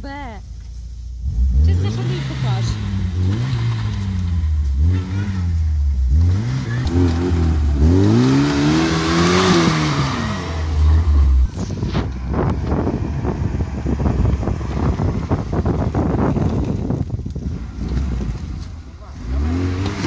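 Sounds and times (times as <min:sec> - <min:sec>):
car engine revving under load: 0:00.4 - 0:20.0
wind buffeting microphone: 0:06.4 - 0:18.9.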